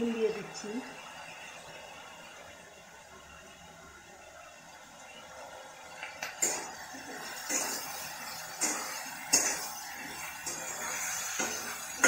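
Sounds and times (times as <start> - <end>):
potatoes frying hiss: 4.6 - 12.0.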